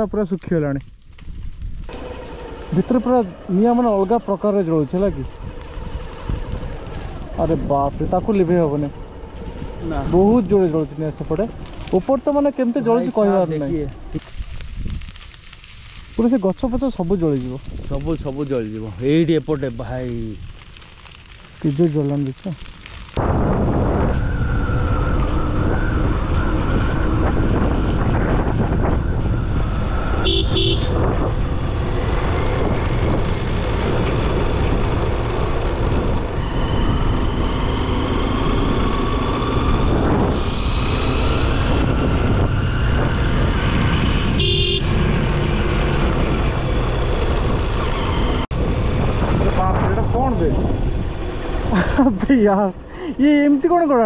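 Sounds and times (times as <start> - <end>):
rushing wind and road noise: 0.0 - 54.0
motorcycle engine: 24.2 - 51.8
horn toot: 30.2 - 31.0, 44.3 - 45.0.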